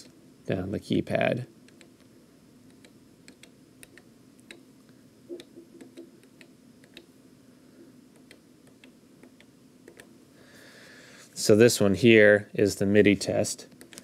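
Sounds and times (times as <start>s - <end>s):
keypad buttons clicking: 2.7s - 4.6s, 5.3s - 7.1s, 8.2s - 10.1s.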